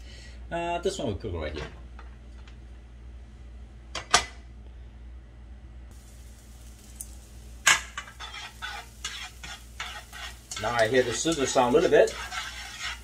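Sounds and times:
garlic sizzling in oil: 0:05.9 - 0:13.0
utensil scraping a pan: 0:07.7 - 0:13.0.

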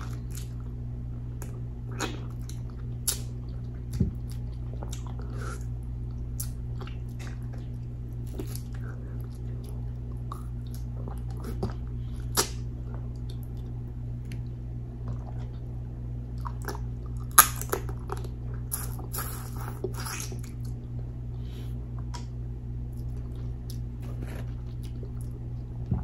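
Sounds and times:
steady low hum: 0:00.0 - 0:26.0
chewing and biting: 0:01.4 - 0:14.5.

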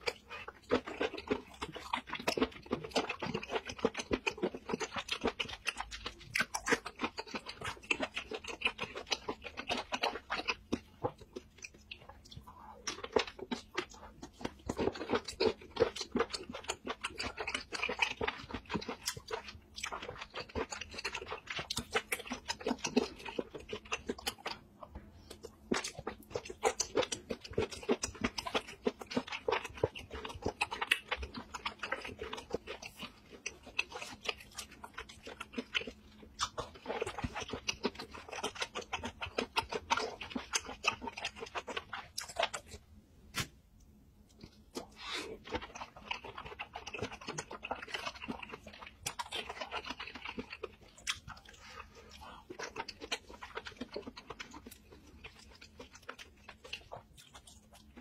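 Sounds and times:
person chewing wetly: 0:00.0 - 0:58.0.

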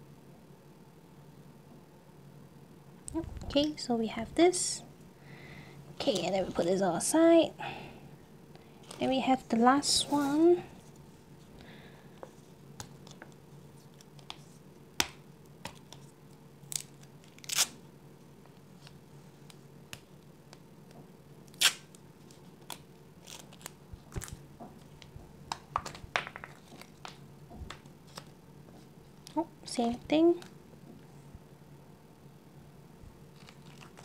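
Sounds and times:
plastic wrapper crinkling: 0:21.6 - 0:25.1, 0:25.7 - 0:28.4, 0:33.3 - 0:34.0.

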